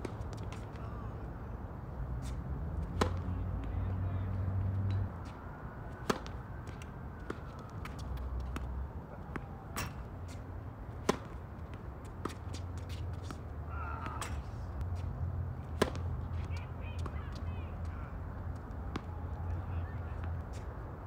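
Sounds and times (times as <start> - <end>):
tennis racket hitting serves: 2.2 - 3.4, 4.8 - 13.4, 15.7 - 17.2.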